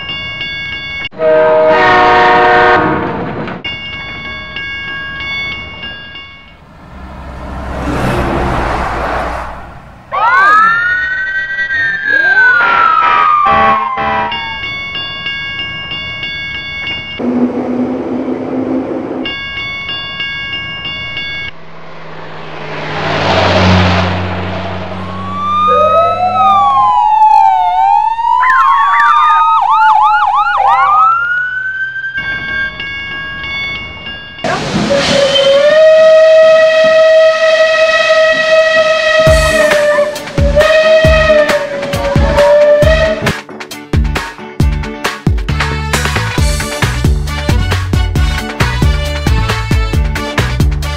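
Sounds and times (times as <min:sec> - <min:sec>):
multi-tone horn chord: 0:01.2 - 0:03.0, 0:35.8 - 0:43.3
rushing swell: 0:06.5 - 0:10.1, 0:21.0 - 0:27.4
siren wailing and yelping: 0:10.1 - 0:14.6, 0:25.0 - 0:32.4, 0:39.3 - 0:43.2.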